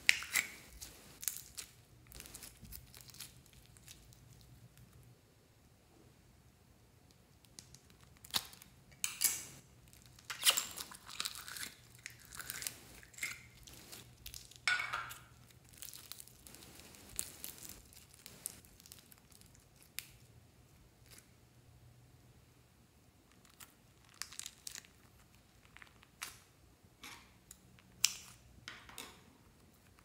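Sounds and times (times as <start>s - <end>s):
foam beads crinkling and crackling: 0.0s - 5.0s, 7.5s - 20.3s, 23.3s - 26.3s.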